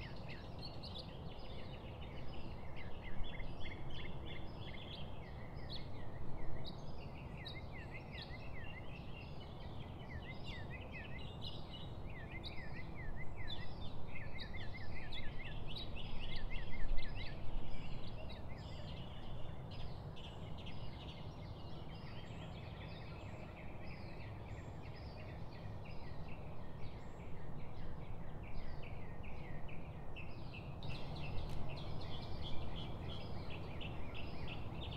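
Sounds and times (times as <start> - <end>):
small birds chirping: 0.0 - 34.9.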